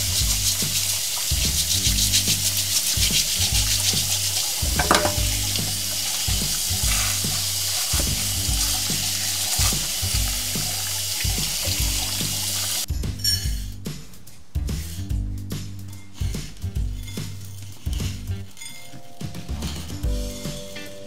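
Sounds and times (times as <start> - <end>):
tap water running: 0.0 - 12.9.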